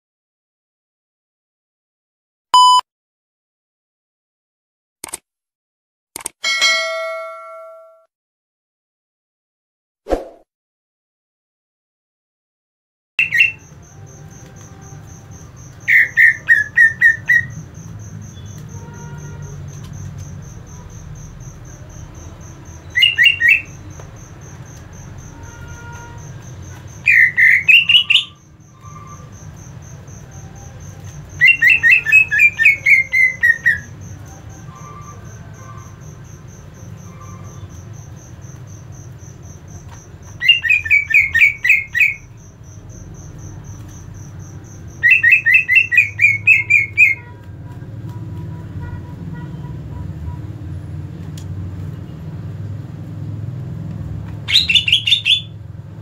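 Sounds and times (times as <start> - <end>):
bird calling in quick bursts: 54.5 - 55.5.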